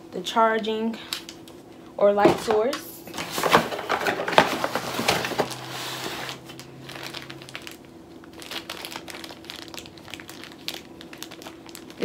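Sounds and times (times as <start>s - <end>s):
paper and plastic rustling: 2.2s - 12.0s.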